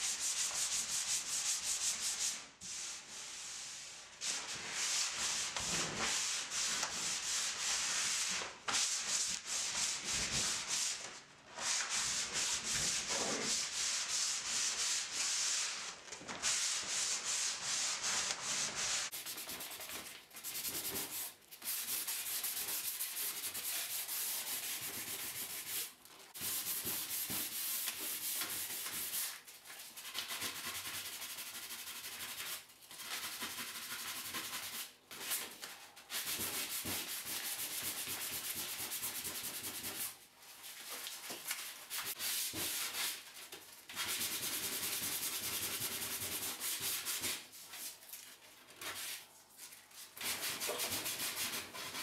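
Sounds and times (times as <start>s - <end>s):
sandpaper rubbing on wood: 50.2s - 52.0s.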